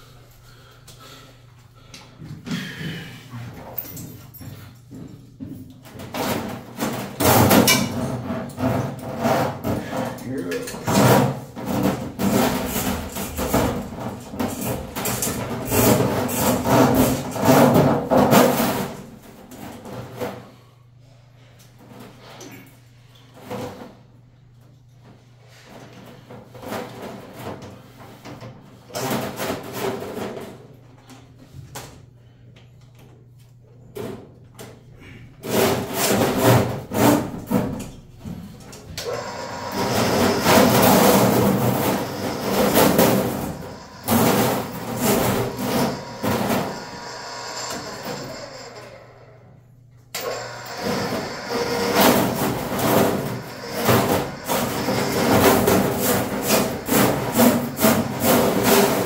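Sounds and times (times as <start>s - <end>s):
drain cleaning machine spinning: 39.0s - 59.0s.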